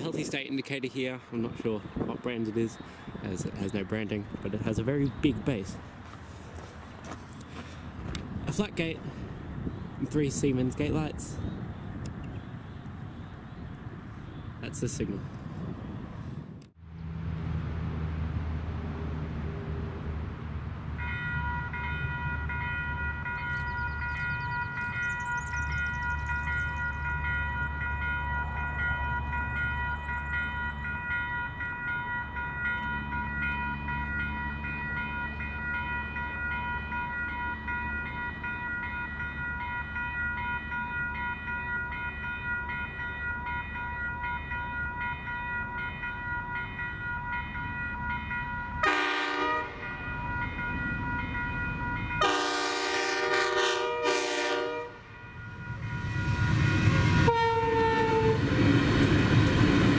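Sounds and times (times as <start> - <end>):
level crossing bell ringing: 21.0 - 52.5
diesel locomotive horn: 48.8 - 49.9, 52.2 - 55.1, 56.3 - 58.7.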